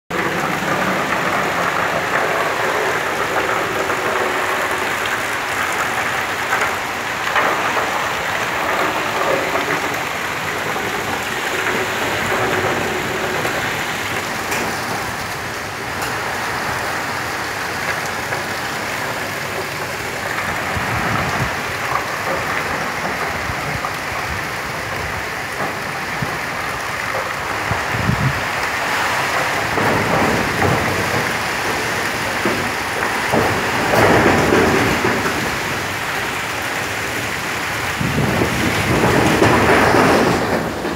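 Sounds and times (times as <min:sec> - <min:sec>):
wind and heavy rain: 0:00.1 - 0:40.9
wind buffeting microphone: 0:19.0 - 0:40.9.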